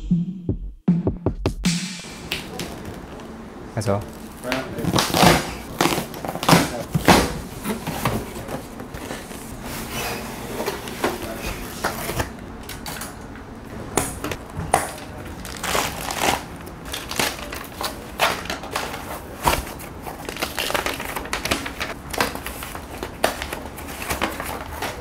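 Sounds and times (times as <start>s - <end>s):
plastic wrap crinkling: 4.0s - 10.2s, 14.4s - 25.0s.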